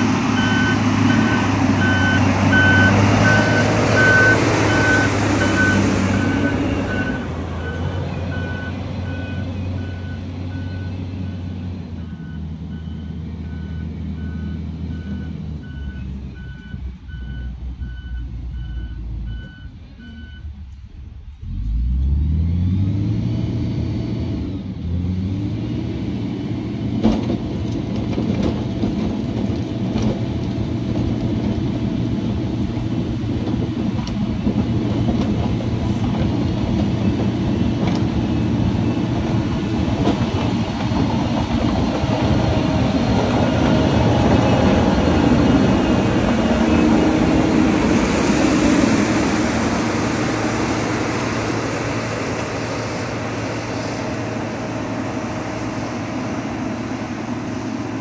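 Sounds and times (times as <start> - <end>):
diesel engine running: 0.0 - 25.0, 26.5 - 58.0
reversing alarm beeping: 0.3 - 20.5.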